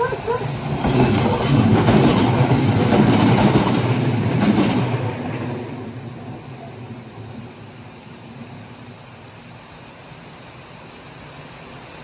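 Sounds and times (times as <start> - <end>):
train wheels on rails: 0.0 - 9.5
electric train passing: 0.0 - 12.0.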